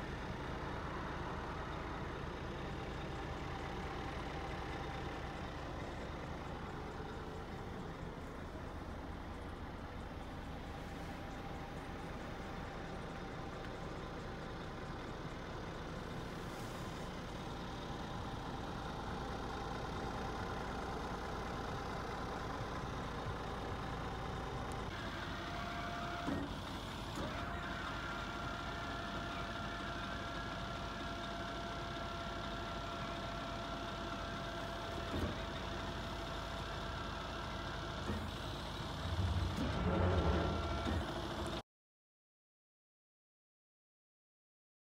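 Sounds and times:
truck engine idling: 0.0 - 41.6
hydraulic pump whine: 24.9 - 41.6.

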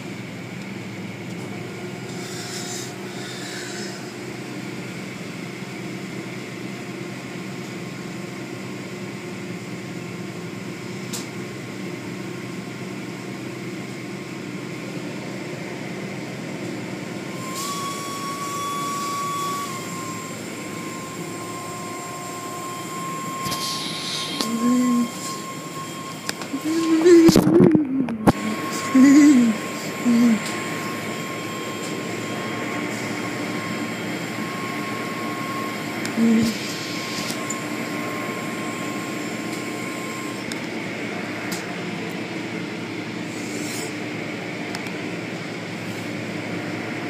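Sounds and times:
car wash machinery drone: 0.0 - 47.0
thin high whine: 2.0 - 4.6, 17.4 - 40.5.

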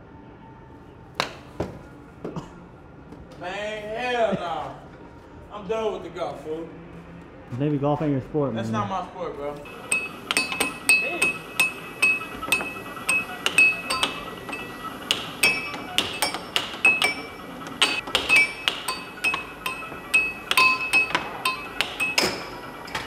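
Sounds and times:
air hockey puck clacking: 9.7 - 23.0.

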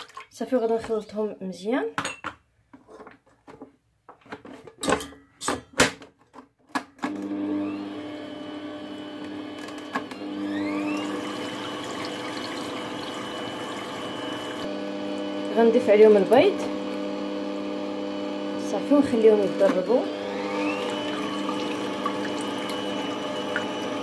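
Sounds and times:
stand mixer motor whine: 7.1 - 24.0.

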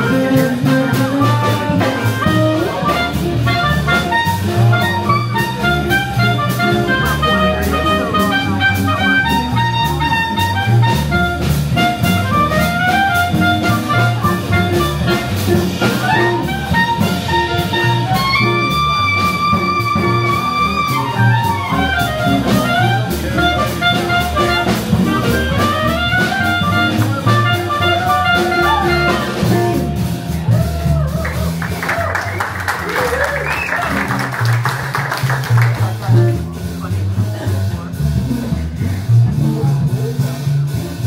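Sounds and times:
jazz clarinet solo: 0.0 - 36.5
drums: 0.0 - 41.0
upright bass: 0.0 - 41.0.

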